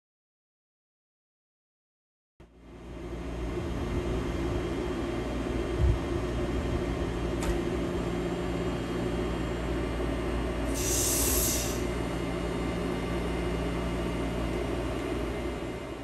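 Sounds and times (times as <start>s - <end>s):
locomotive machinery hum: 2.6s - 16.0s
air hiss: 10.7s - 11.9s.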